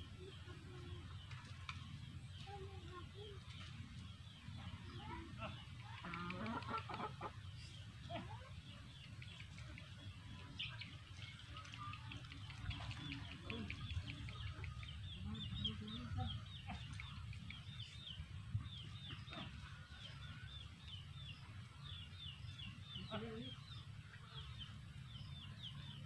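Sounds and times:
low steady rumble: 0.0 - 26.0
chicken calls: 5.8 - 7.5.

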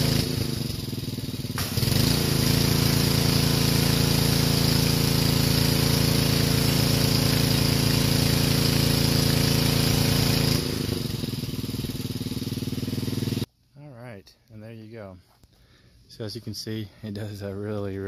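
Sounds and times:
pressure washer engine running: 0.0 - 13.5
water spray hissing: 1.5 - 13.4.

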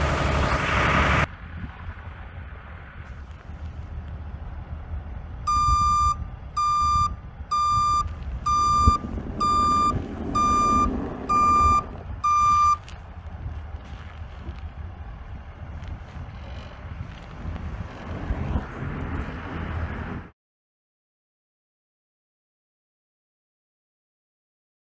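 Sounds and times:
diesel engine running: 0.0 - 20.3
truck reversing alarm beeping: 5.4 - 12.9.

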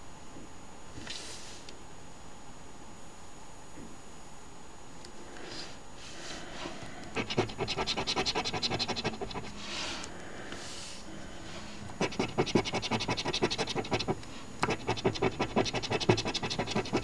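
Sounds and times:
coin scraping lottery ticket: 7.2 - 9.5, 12.0 - 17.0.

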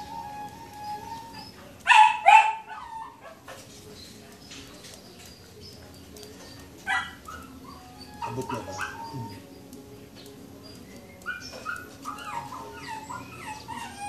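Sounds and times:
dog barking: 1.9 - 2.8.

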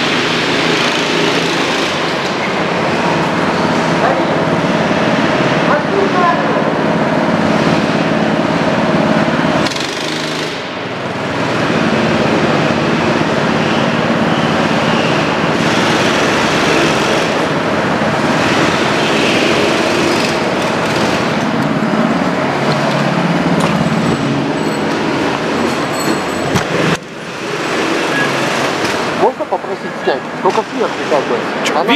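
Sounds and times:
go-kart engines revving: 0.0 - 31.9.

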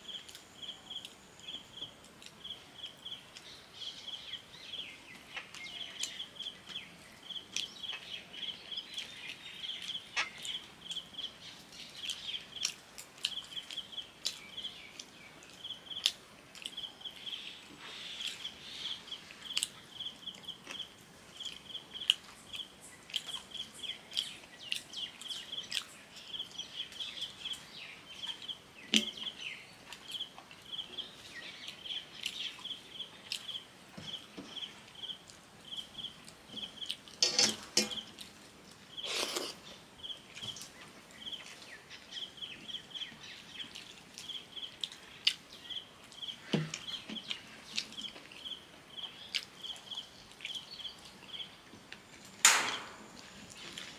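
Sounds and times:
chewing: 19.3 - 26.3, 43.6 - 48.3, 49.0 - 51.2
clicks against metal plate: 52.4 - 53.2.

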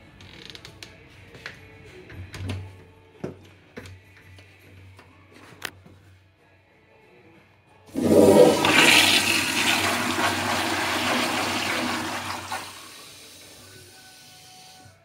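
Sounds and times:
toilet flushing: 7.9 - 14.8.

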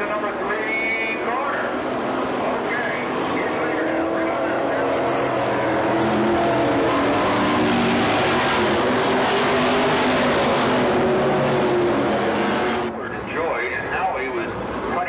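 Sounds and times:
race car engines passing: 0.0 - 15.0.

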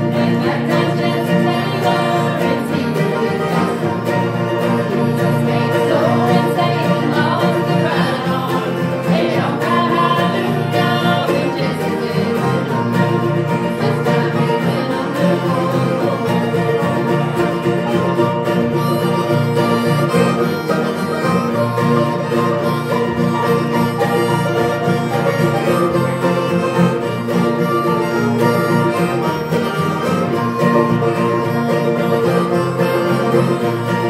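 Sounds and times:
acoustic guitars strumming: 0.0 - 34.0
banjo picking: 0.0 - 34.0
mandolin picking: 0.0 - 34.0.

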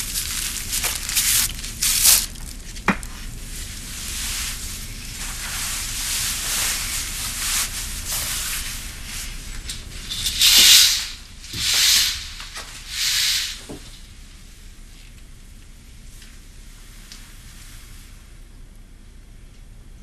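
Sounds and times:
fabric rustling: 0.0 - 14.2
curtain swishing along rail: 3.5 - 14.2.

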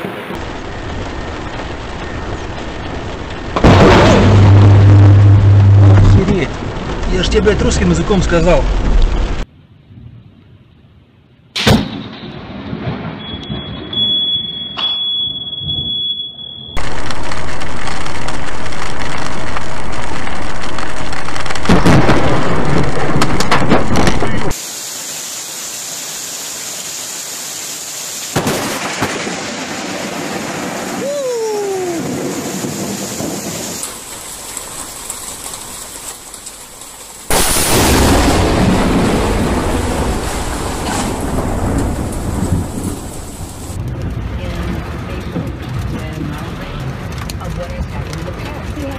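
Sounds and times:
steady high whine: 0.0 - 6.3, 14.8 - 21.9
heavy rain on car: 0.0 - 9.5, 16.8 - 48.9
thunder crash: 0.0 - 9.5, 11.6 - 14.0, 16.8 - 24.6, 28.3 - 31.2, 31.8 - 35.0, 37.3 - 45.4.

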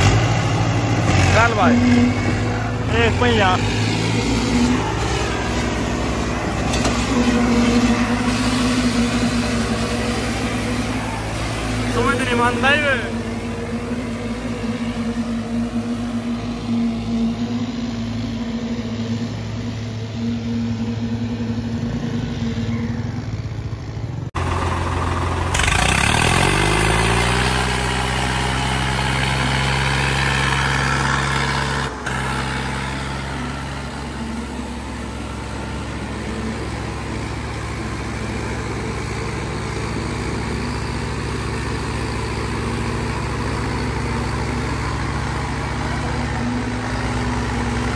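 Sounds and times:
engine revving: 0.0 - 47.9
tractor diesel engines under load: 0.0 - 47.9.

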